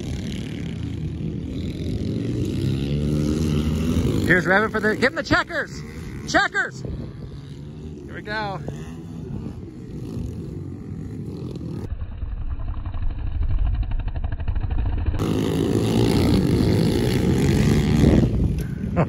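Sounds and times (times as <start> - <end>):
small motorbike engines revving: 0.0 - 19.0.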